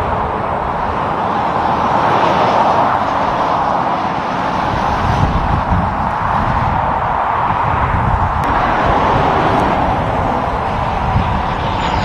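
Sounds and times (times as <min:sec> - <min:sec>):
highway traffic: 0:00.0 - 0:12.0
deep rumble of passing pickup: 0:05.2 - 0:12.0.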